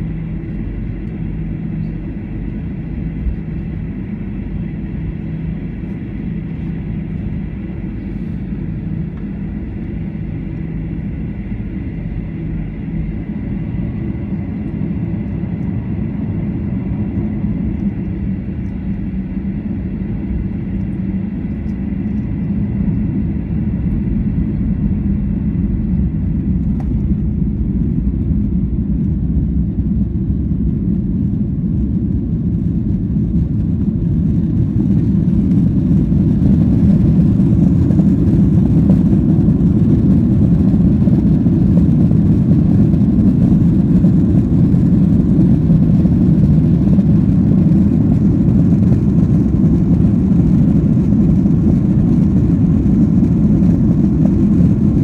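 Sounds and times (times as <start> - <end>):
jet engines rumbling in cabin: 0.0 - 55.0.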